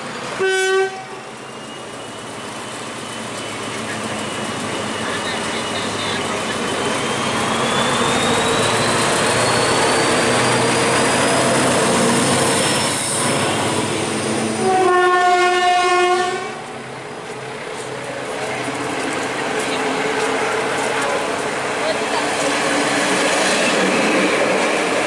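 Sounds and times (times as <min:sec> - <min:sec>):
diesel locomotive passing: 0:00.0 - 0:25.0
train wheels on rails: 0:00.0 - 0:25.0
locomotive horn blast: 0:00.4 - 0:01.2, 0:14.5 - 0:16.6.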